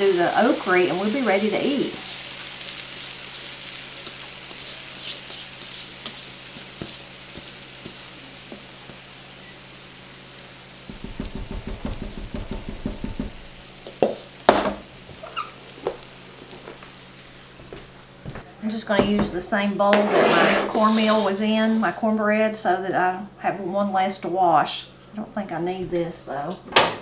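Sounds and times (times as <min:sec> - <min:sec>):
batter sizzling in hot skillet: 0:00.0 - 0:18.4
spatula scraping bowl: 0:04.5 - 0:08.1, 0:19.8 - 0:21.9
sharp knocks: 0:10.9 - 0:14.8.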